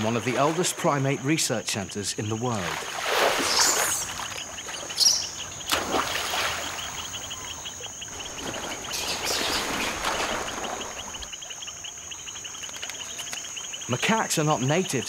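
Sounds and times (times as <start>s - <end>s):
water splashing: 0.0s - 11.7s
insects chirping: 0.0s - 15.0s.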